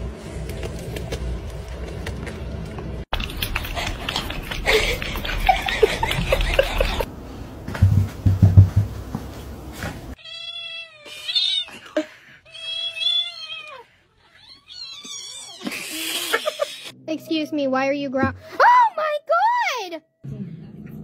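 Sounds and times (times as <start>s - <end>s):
low thumps: 7.7s - 9.3s.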